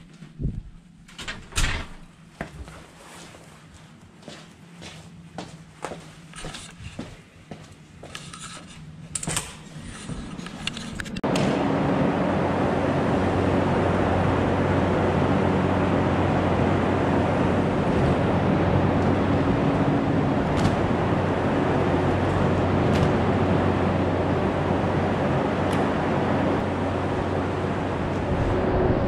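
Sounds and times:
electric hangar door drone: 8.9s - 29.0s.

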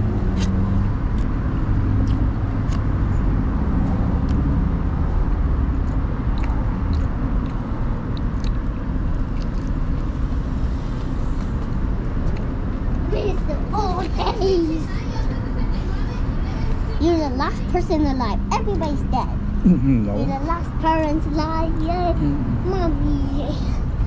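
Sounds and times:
road traffic: 0.0s - 24.0s
chewing crunches: 1.9s - 2.9s, 5.8s - 10.0s.

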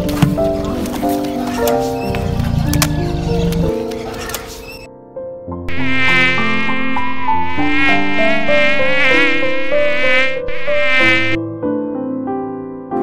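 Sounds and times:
flying insect buzzing: 5.7s - 11.4s.

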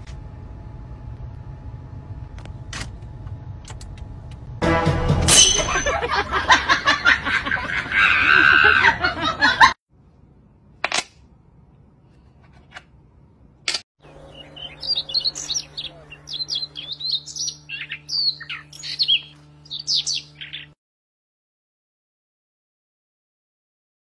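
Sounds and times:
small birds chirping: 14.0s - 20.8s.

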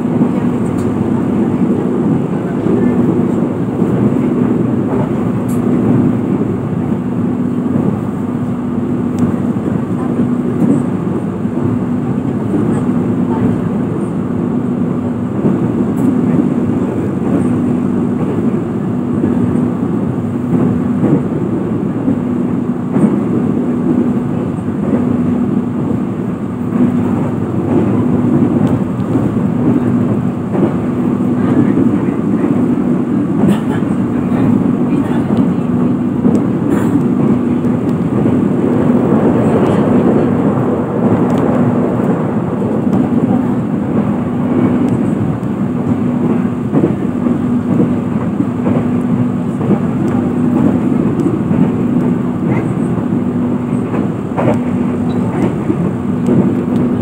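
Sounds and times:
train running noise: 0.0s - 57.0s.

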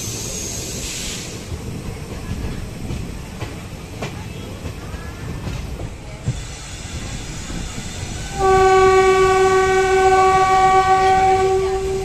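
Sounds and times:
train rumbling on track: 0.0s - 12.0s
train horn blast: 8.3s - 12.0s.

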